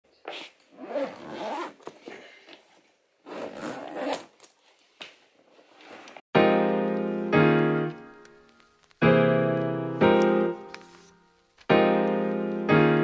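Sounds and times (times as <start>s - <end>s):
suitcase zip being pulled: 0.8s - 2.0s, 3.2s - 4.4s, 5.7s - 6.2s
piano music: 6.4s - 13.0s.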